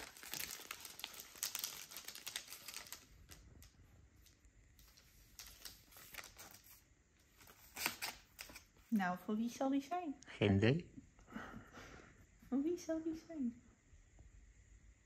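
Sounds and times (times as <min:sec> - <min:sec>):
packaging crackling and clicking: 0:00.0 - 0:06.6.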